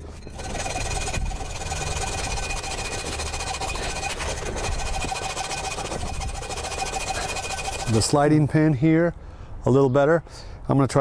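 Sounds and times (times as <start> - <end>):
hacksaw cutting metal: 0.0 - 8.4.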